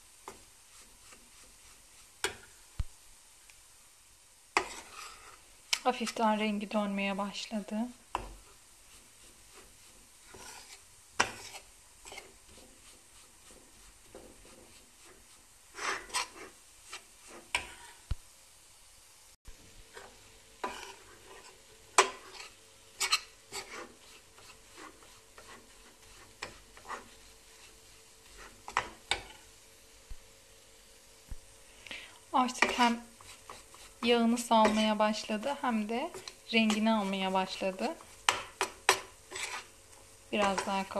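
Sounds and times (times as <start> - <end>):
metal spoon scraping a pan: 0.2 - 2.5, 4.6 - 6.5, 8.1 - 18.1, 19.9 - 29.5, 32.4 - 40.9.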